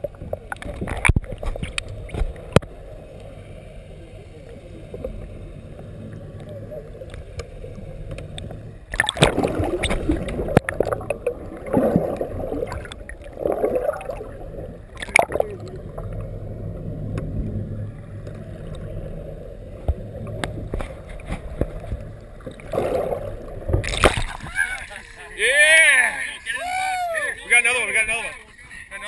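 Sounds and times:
muffled underwater gurgling: 0:00.0 - 0:25.4
steady low hum: 0:00.0 - 0:25.5
water splashes: 0:00.0 - 0:26.5.

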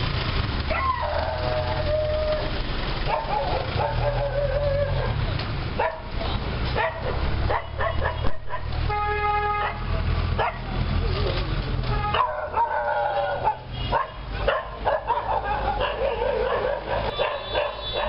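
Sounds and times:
low rumble of street noise: 0:00.0 - 0:18.0
dog barking: 0:03.1 - 0:04.3, 0:05.8 - 0:06.1, 0:06.8 - 0:08.7, 0:09.6 - 0:10.7, 0:12.1 - 0:18.0.

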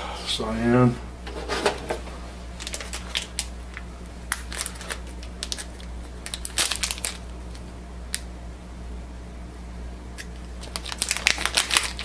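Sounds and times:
wrapper tearing and crinkling: 0:02.6 - 0:03.5, 0:04.3 - 0:07.6, 0:10.6 - 0:12.0.

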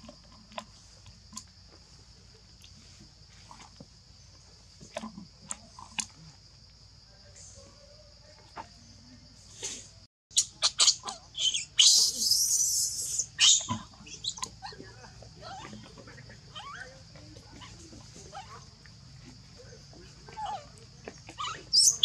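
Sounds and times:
infant monkey screaming: 0:10.4 - 0:14.8, 0:21.3 - 0:22.0.

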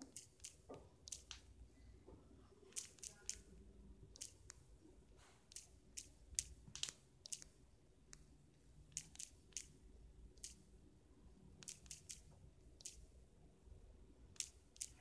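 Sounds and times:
touchscreen tapping clicks: 0:00.0 - 0:01.4, 0:02.7 - 0:04.7, 0:05.5 - 0:08.3, 0:08.9 - 0:09.8, 0:11.6 - 0:13.0.

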